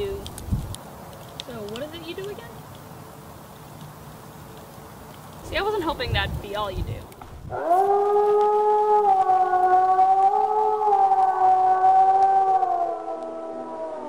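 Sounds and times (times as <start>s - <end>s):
wolf howling: 7.4s - 14.0s.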